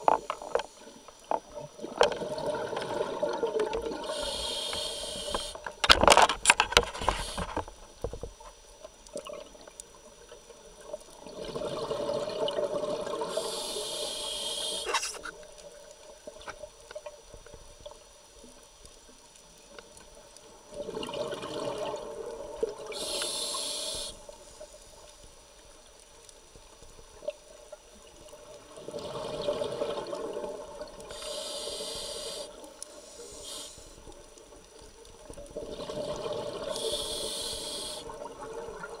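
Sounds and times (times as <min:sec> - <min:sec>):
crackling burst of bubbles: 0:00.0 - 0:07.7, 0:11.1 - 0:15.6, 0:20.7 - 0:24.2, 0:28.5 - 0:31.5, 0:35.2 - 0:39.0
regulator breathing: 0:04.0 - 0:05.6, 0:13.3 - 0:15.2, 0:23.0 - 0:24.2, 0:31.1 - 0:34.0, 0:36.7 - 0:38.1.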